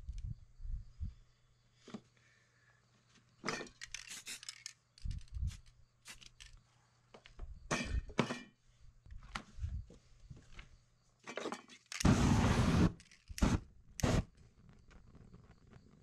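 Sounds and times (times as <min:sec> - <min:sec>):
quiet aerosol hisses: 0:03.9 - 0:04.7, 0:05.4 - 0:06.4
aerosol flame whoosh: 0:12.0 - 0:14.2.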